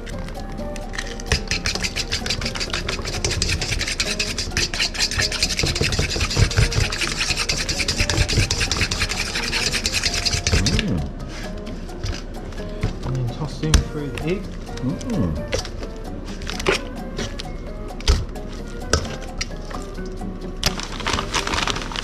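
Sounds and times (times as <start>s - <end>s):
fork beating egg in bowl: 0.7s - 10.9s.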